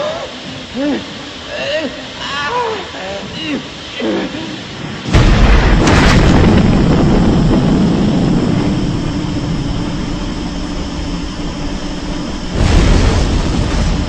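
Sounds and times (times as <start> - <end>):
steady low hum: 0.0 - 14.0
explosion blast with deep rumble: 5.0 - 14.0.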